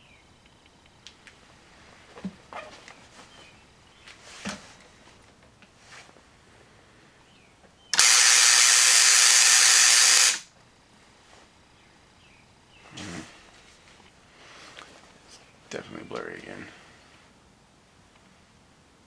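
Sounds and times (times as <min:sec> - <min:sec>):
tesla coil electrical buzz: 0:07.9 - 0:10.6.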